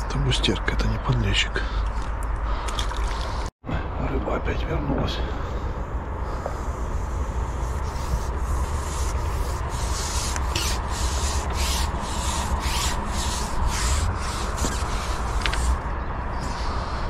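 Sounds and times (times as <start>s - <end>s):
rubbing strokes: 6.3s - 16.8s.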